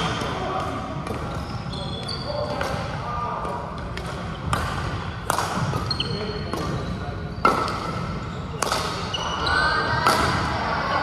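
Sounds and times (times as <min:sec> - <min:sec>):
rackets hitting shuttlecock: 0:00.0 - 0:01.5, 0:02.4 - 0:10.7
shoes squeaking on court floor: 0:01.0 - 0:02.9, 0:05.6 - 0:10.1.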